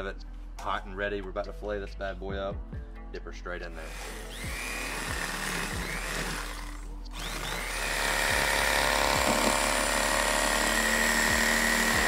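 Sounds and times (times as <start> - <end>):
electric knife motor buzzing: 3.9 - 12.0.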